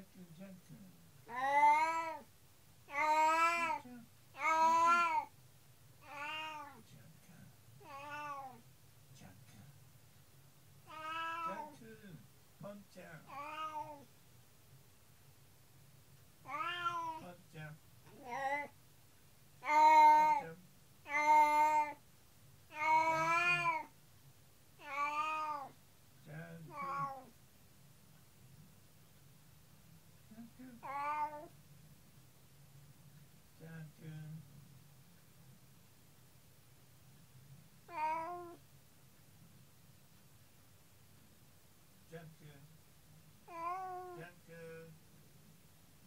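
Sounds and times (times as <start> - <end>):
cat meowing: 1.3 - 2.2, 2.9 - 3.8, 4.4 - 5.3, 6.0 - 6.8, 7.8 - 8.6, 10.9 - 11.7, 16.4 - 17.2, 19.6 - 20.4, 21.1 - 22.0, 22.7 - 23.9, 24.8 - 25.8, 26.7 - 27.3, 30.8 - 31.5, 37.9 - 38.6, 43.5 - 44.2.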